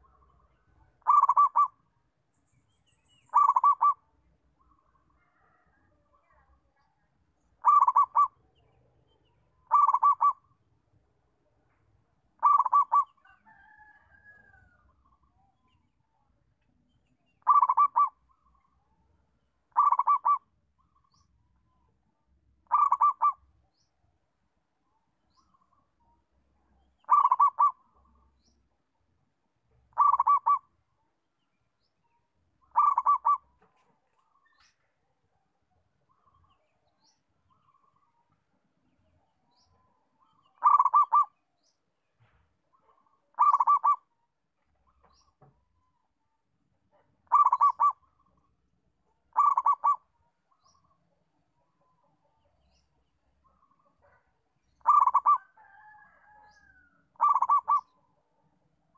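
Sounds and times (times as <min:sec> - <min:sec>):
dove cooing: 0:01.0 - 0:01.8, 0:03.3 - 0:04.0, 0:07.6 - 0:08.4, 0:09.7 - 0:10.5, 0:12.4 - 0:13.2, 0:17.4 - 0:18.2, 0:19.7 - 0:20.5, 0:22.7 - 0:23.4, 0:27.0 - 0:27.9, 0:29.9 - 0:30.7, 0:32.7 - 0:33.5, 0:40.6 - 0:41.4, 0:43.3 - 0:44.1, 0:47.2 - 0:48.1, 0:49.3 - 0:50.1, 0:54.8 - 0:58.0.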